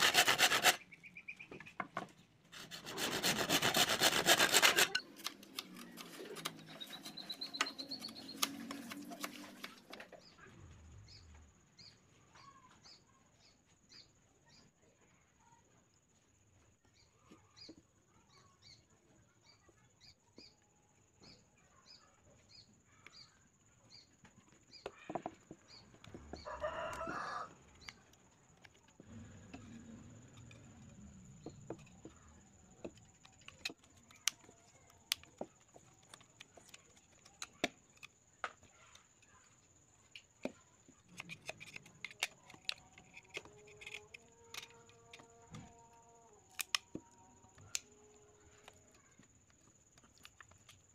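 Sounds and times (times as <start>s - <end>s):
rooster crowing: 26.3s - 27.6s.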